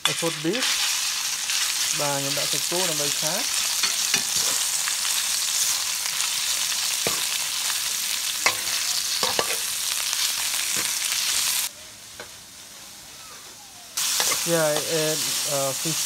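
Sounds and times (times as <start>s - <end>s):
meat sizzling in hot oil: 0.0s - 12.7s, 14.0s - 16.0s
metal spatula scraping wok: 0.6s - 4.8s, 8.4s - 9.7s, 14.0s - 15.4s.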